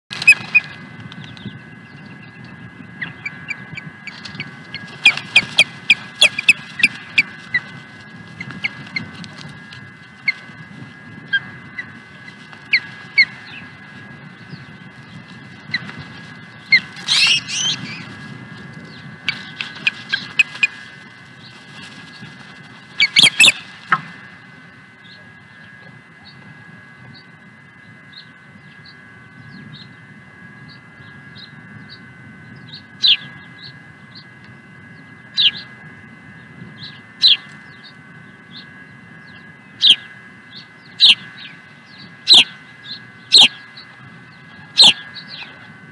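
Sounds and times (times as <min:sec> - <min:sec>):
ospreys whistled chirps: 0:16.5 - 0:18.1, 0:23.0 - 0:23.6, 0:36.8 - 0:45.6.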